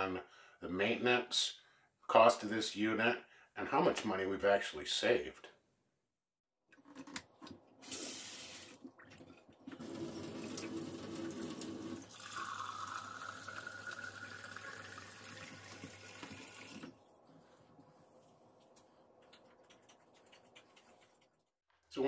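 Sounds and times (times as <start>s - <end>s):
tap water pouring into a mug: 7.4s - 16.9s.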